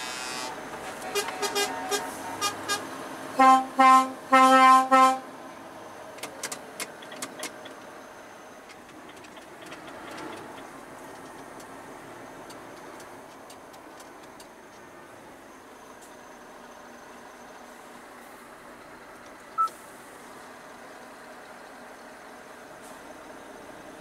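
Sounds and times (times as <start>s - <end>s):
truck cab running noise: 0.0s - 24.0s
truck horn blasts: 1.1s - 5.3s.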